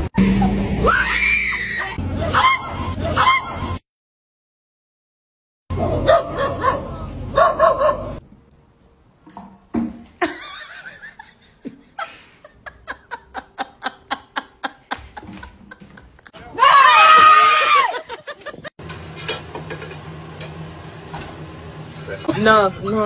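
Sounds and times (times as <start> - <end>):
person laughing in bursts: 10.2 - 16.4, 17.7 - 18.7
loud vocal cry: 16.4 - 18.1.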